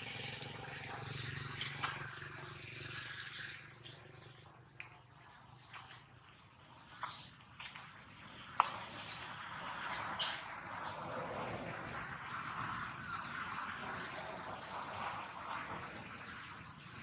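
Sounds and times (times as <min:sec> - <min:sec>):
insect high-pitched trill: 0:00.0 - 0:04.4, 0:10.2 - 0:16.7.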